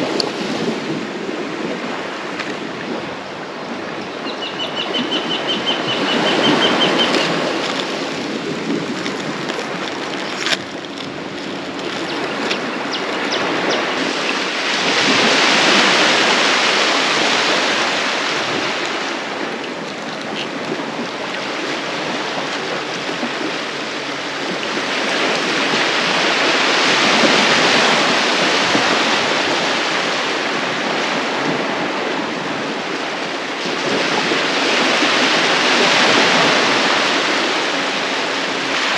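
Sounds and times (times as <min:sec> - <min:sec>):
waves washing onto beach: 0:00.0 - 0:38.9
bird trill: 0:04.2 - 0:07.3.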